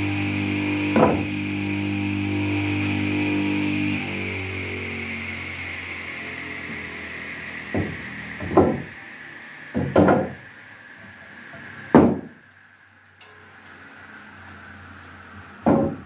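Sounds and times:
table saw whine falling in pitch: 0.0 - 10.5
wood knocking on saw table: 1.0 - 1.3, 7.7 - 8.9, 9.8 - 10.4, 11.9 - 12.3, 15.6 - 16.0.

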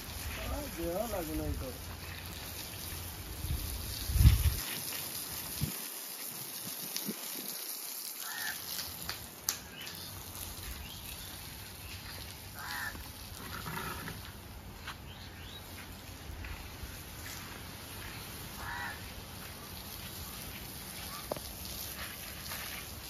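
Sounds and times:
hose spraying water on dirt: 0.0 - 23.0
birds calling: 8.2 - 8.8, 9.6 - 16.1, 18.0 - 21.6.

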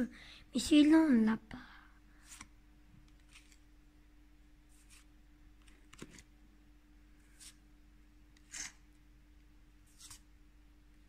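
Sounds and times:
faint steady hum: 0.0 - 11.0
cards swishing and flicking: 2.2 - 2.5, 3.1 - 3.6, 4.7 - 6.3, 7.3 - 7.6, 8.4 - 8.9, 9.8 - 10.3.

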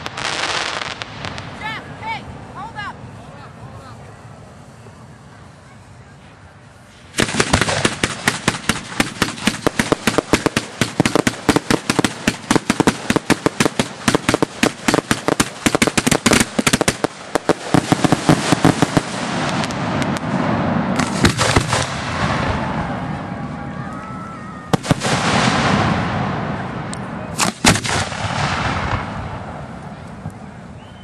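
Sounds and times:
steady rushing noise: 0.0 - 30.8
fireworks cracking: 0.0 - 31.0.

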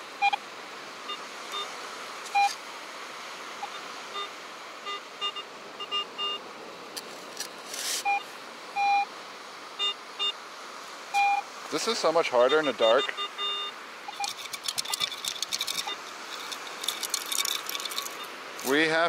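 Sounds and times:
metal detector beeping: 2.3 - 2.6, 8.8 - 9.0, 11.2 - 11.4, 12.5 - 18.8.

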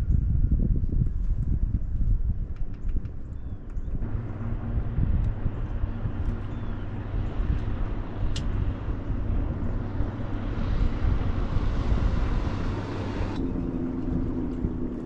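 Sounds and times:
outboard motor running: 4.0 - 15.0
sharp click: 8.3 - 8.6.

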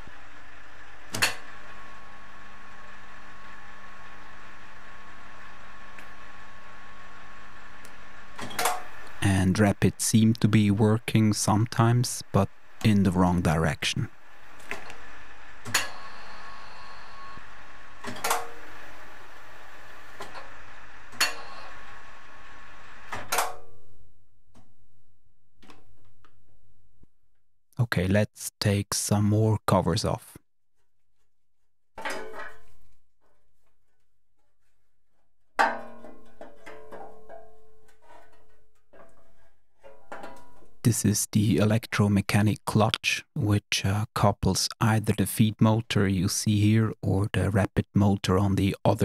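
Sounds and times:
machine drive motor hum: 0.0 - 24.8.

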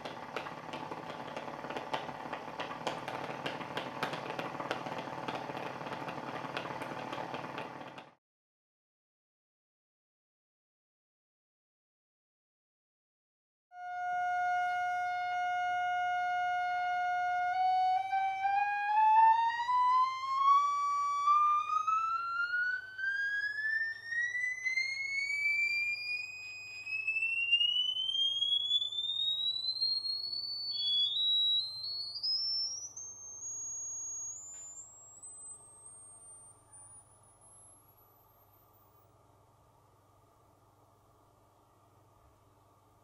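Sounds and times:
rising sine tone from loudspeaker: 0.0 - 8.2, 13.8 - 39.1.

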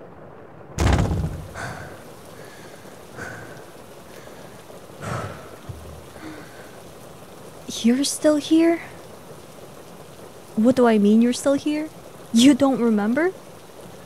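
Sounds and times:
steady rain: 0.0 - 14.0
thunder crack rolling: 0.5 - 6.8.

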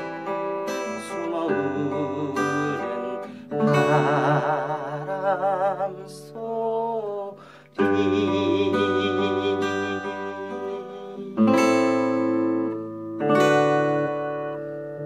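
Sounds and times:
fingerstyle acoustic guitar: 0.0 - 15.0.

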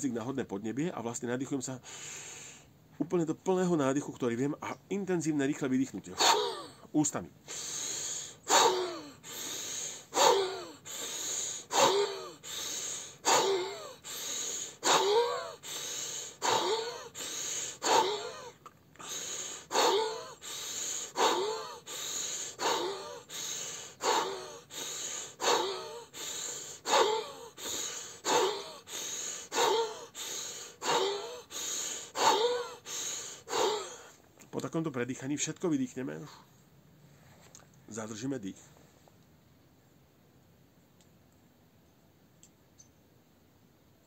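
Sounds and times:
man breathing rapidly: 1.8 - 2.9, 7.4 - 34.2.

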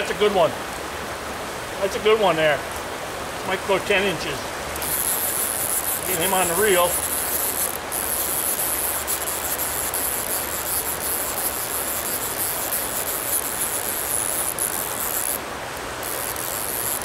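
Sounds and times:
stream water rushing over rocks: 0.0 - 17.0
high-pitched insect buzz: 4.7 - 17.0.

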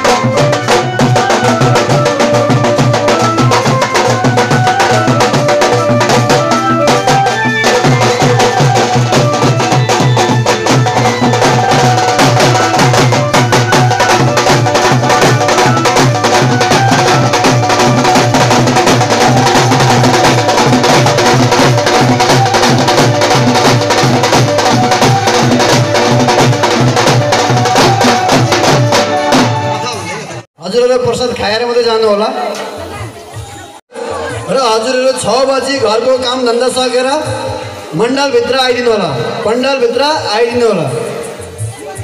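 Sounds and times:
fast drumming: 0.0 - 30.1
held melodic line: 0.0 - 30.4.

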